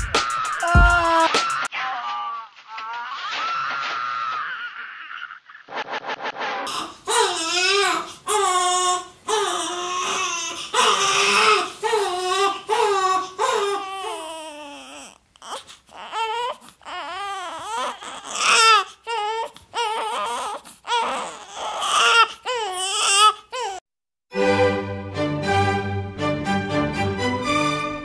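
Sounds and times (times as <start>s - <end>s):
man wailing sobs: 0.0s - 1.7s
music: 0.0s - 1.7s, 24.3s - 28.0s.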